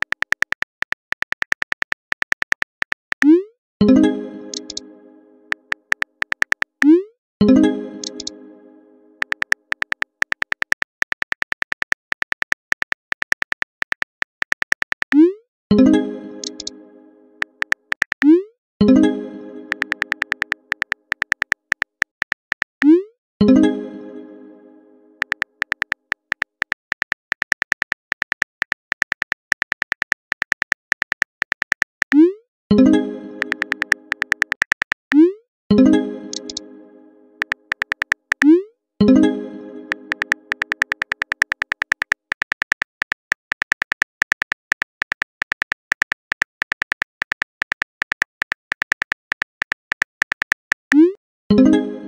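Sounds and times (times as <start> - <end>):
phone keyboard typing clicks: 0.0 - 3.4, 4.5 - 4.8, 5.5 - 7.0, 8.0 - 8.3, 9.2 - 15.3, 16.4 - 16.7, 17.4 - 18.3, 19.7 - 22.9, 25.2 - 32.2, 33.4 - 35.3, 36.3 - 36.6, 37.4 - 38.6, 39.9 - 51.2.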